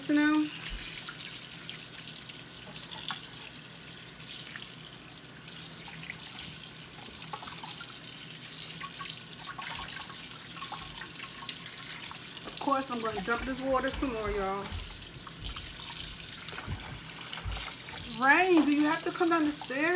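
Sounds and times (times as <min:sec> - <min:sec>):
faucet running into a bowl: 0:00.0 - 0:19.9
hands rubbing meat in water: 0:11.9 - 0:19.9.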